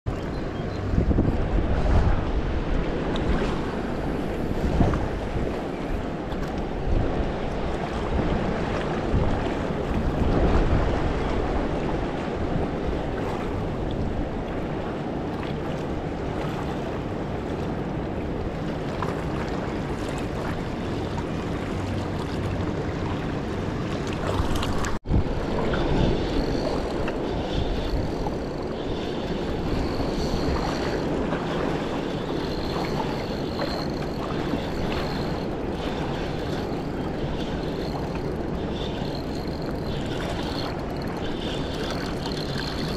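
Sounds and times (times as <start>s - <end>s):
wind rumbling on microphone: 0.1s - 42.9s
river water lapping on rocks: 23.9s - 42.9s.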